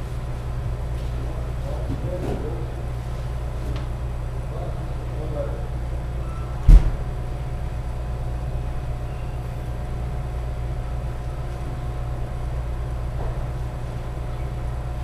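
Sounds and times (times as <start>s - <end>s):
steady low hum: 0.0s - 15.0s
loud sharp thump: 6.6s - 7.1s.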